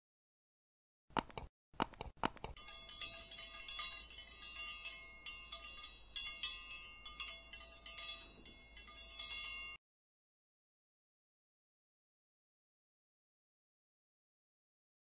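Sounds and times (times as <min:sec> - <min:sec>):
quick clicks: 0:01.1 - 0:02.6
high tinkling chime tones: 0:02.6 - 0:09.8.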